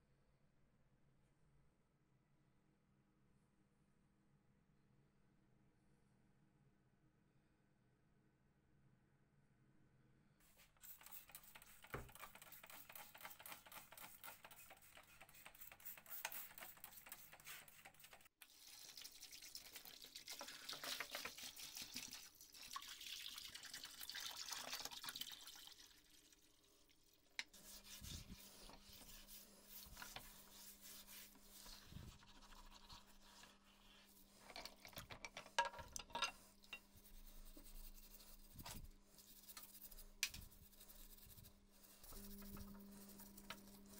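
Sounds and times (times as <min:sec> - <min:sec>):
water pouring into plastic tub: 0:18.4 - 0:27.3
steel wool scrubbing metal: 0:27.4 - 0:34.7.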